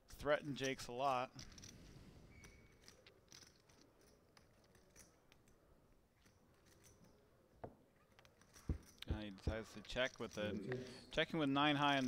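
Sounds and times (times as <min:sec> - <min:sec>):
poker chips clicking: 0:01.4 - 0:07.2.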